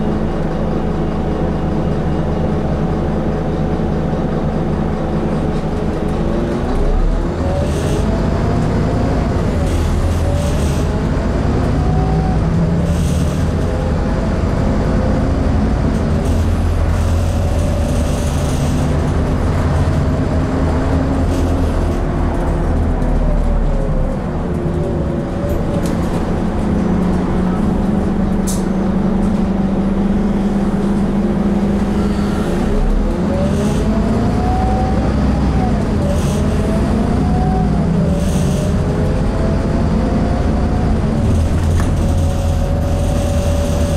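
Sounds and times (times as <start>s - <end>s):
bus diesel engine whining: 0.0s - 43.9s.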